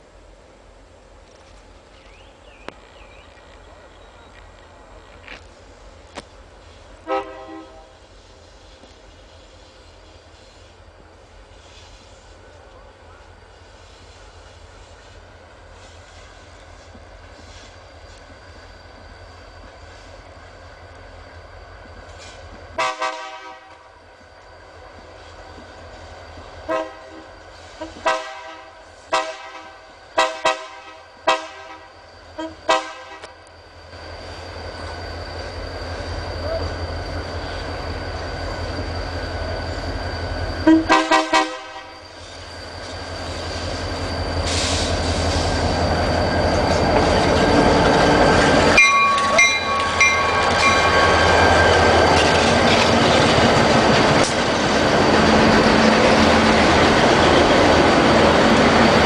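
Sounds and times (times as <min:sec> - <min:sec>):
locomotive engine rumble: 0:00.0 - 0:59.0
locomotive horn blasts: 0:07.0 - 0:08.0, 0:22.8 - 0:23.9, 0:26.7 - 0:33.4, 0:40.6 - 0:42.0.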